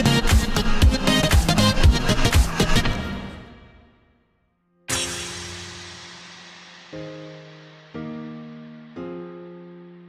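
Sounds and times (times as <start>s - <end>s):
dance music: 0.0s - 3.8s.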